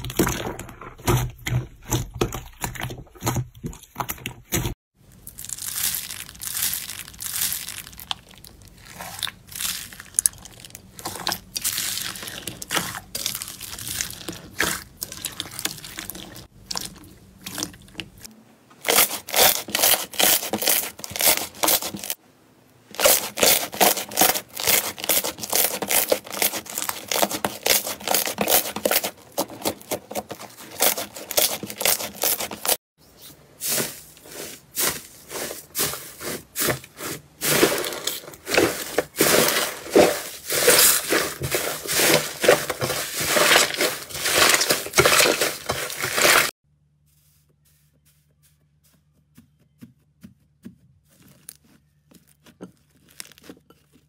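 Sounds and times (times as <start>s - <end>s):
foam beads crunching: 5.1s - 16.5s, 18.8s - 22.2s, 22.9s - 32.8s, 33.6s - 46.6s, 51.1s - 54.0s.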